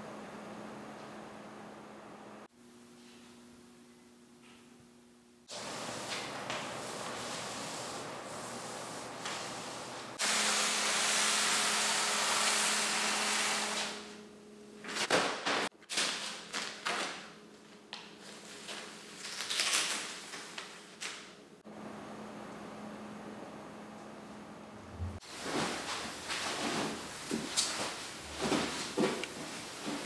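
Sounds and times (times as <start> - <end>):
plastic wrapping rustling: 14.8 - 21.3
plastic wrap crinkling: 15.8 - 21.2.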